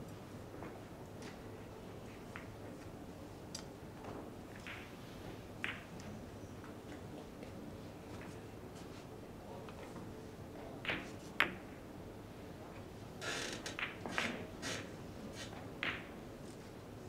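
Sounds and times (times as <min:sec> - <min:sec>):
billiard balls clicking: 0:13.6 - 0:14.4.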